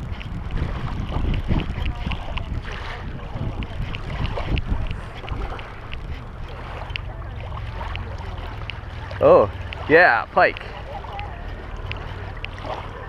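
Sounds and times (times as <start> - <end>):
water lapping at shore: 0.0 - 13.0
wind rumbling on microphone: 0.0 - 13.0
fishing reel ticking: 3.4 - 13.0.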